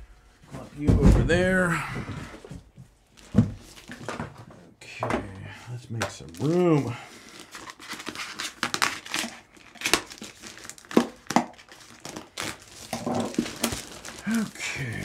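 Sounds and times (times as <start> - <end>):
plastic crinkling and tearing: 3.2 - 4.2, 6.1 - 15.0.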